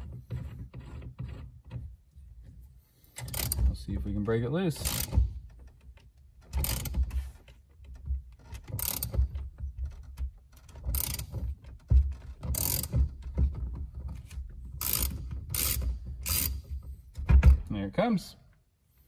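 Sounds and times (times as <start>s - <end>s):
socket ratchet clicking: 3.2s - 3.6s, 4.8s - 5.8s, 6.4s - 7.0s, 8.5s - 9.3s, 10.7s - 11.4s, 12.5s - 13.2s, 14.8s - 16.7s.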